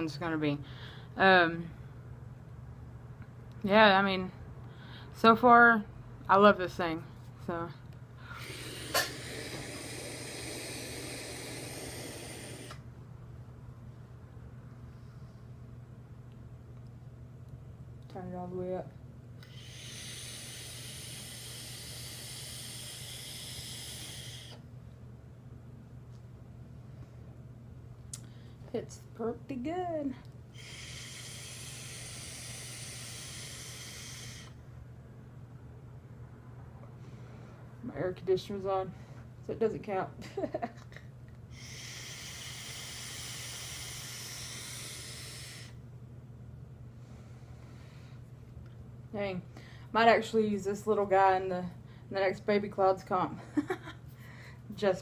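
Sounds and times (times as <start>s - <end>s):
vape tank draw hiss: 8.5s - 12.8s, 19.5s - 24.6s, 30.6s - 34.5s, 41.6s - 45.8s.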